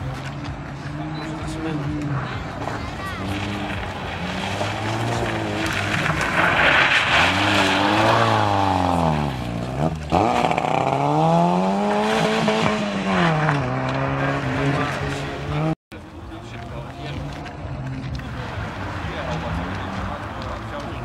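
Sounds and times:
car engine revving hard: 3.1 - 15.8.

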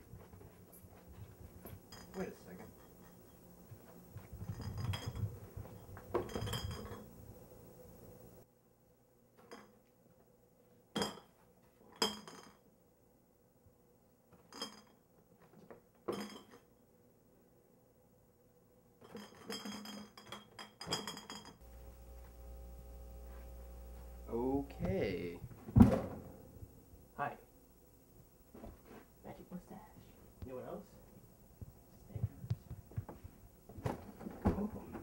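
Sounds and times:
glass clinking: 5.9 - 7.1.

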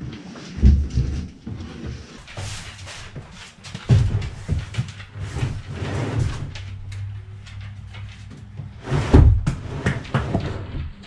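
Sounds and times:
plastic tank scraping on floor: 0.6 - 7.6, 8.3 - 10.9
heavy thump: 9.0 - 9.6.

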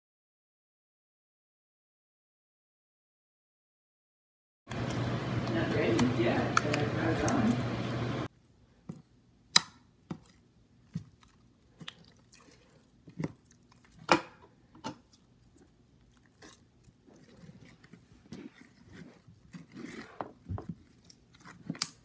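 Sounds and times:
noise putty squelching: 4.7 - 22.0.

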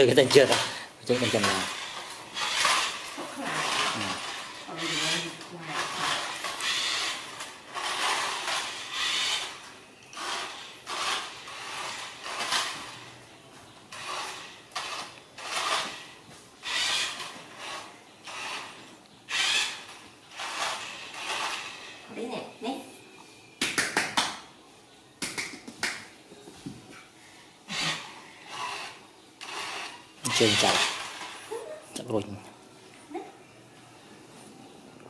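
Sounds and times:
toy car skidding on tiles: 0.0 - 13.2, 13.9 - 22.1, 27.7 - 31.5.

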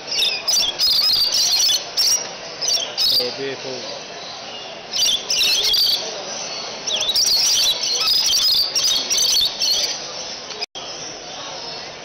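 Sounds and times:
parrots chirping and squawking: 0.1 - 3.4, 4.9 - 6.0, 6.8 - 10.0.

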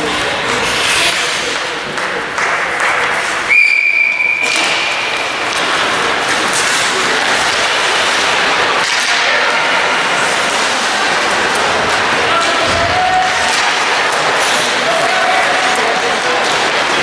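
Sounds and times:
crowd and hockey play noise: 0.0 - 17.0
whistle blast: 3.5 - 4.6.

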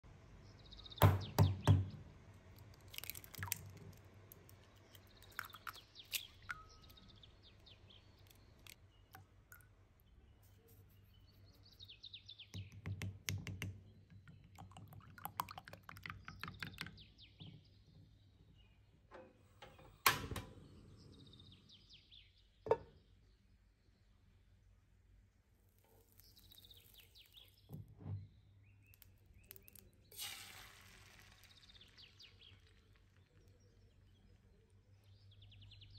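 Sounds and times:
birds chirping faintly: 0.3 - 35.9
eggs cracked against ceramic bowl: 2.6 - 7.6, 8.2 - 9.8, 12.6 - 17.0.

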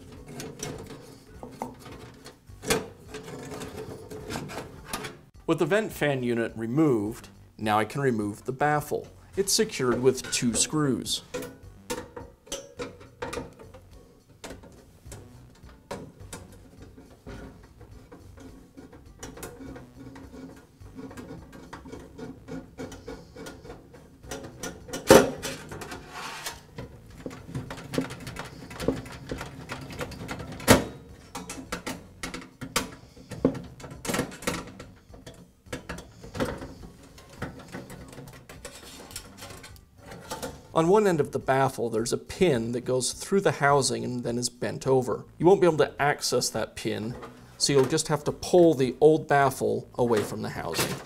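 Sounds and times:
screws scraping and ticking: 14.5 - 30.6.

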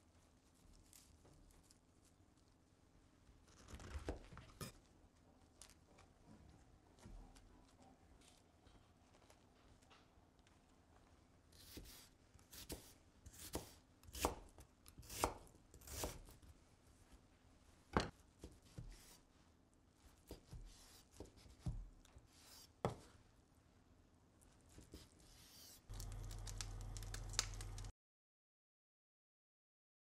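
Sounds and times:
knife cutting onion on wooden board: 11.6 - 16.4, 18.4 - 19.3, 20.2 - 23.1, 24.7 - 27.7.

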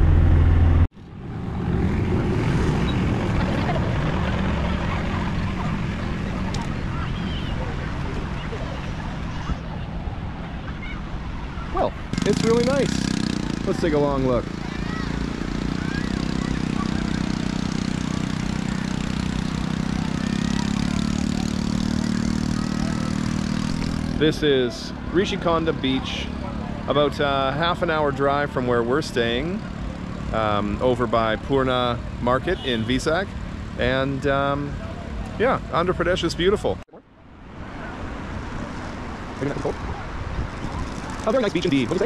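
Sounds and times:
engine humming: 0.0 - 27.8.

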